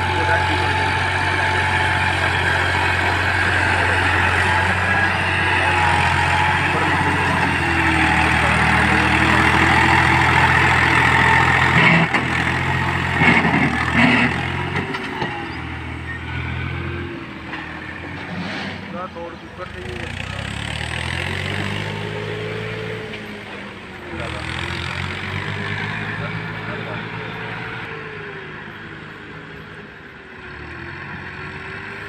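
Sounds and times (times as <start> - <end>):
tractor diesel engine labouring: 0.0 - 32.0
knocks and clatters: 11.4 - 15.6.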